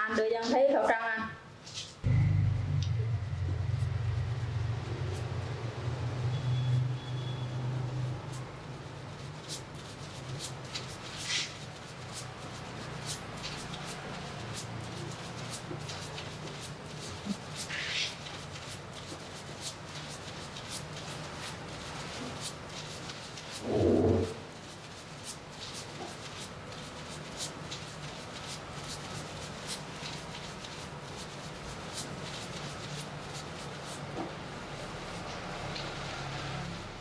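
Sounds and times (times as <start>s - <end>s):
steady low hum: 2.0s - 6.7s
fingers scrubbing lathered hair: 7.6s - 35.9s.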